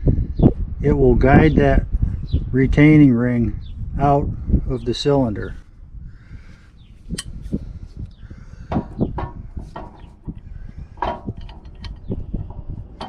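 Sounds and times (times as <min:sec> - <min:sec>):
metal clicks knocks and scrapes: 0:07.1 - 0:07.6, 0:08.6 - 0:13.0.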